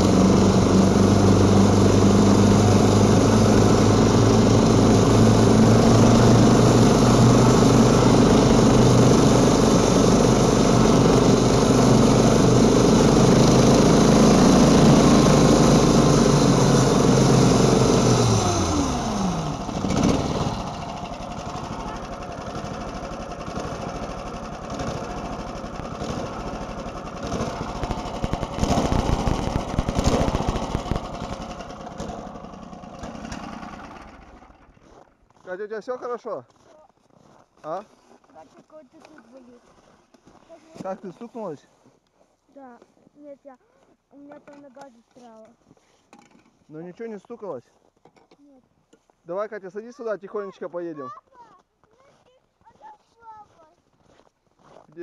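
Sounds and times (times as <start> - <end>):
small engine running: 0.0 - 35.1.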